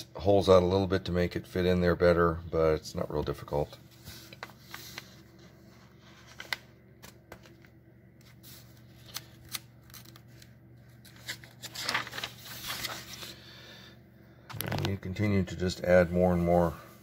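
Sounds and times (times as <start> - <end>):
paper rustling: 3.8 - 13.4.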